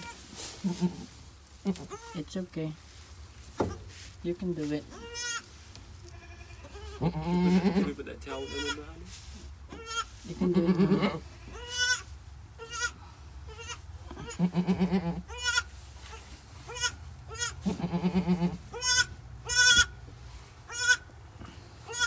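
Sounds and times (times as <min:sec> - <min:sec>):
goat bleating: 0:00.0 - 0:02.2, 0:04.9 - 0:08.8, 0:09.7 - 0:15.7, 0:16.7 - 0:20.0, 0:20.7 - 0:21.0.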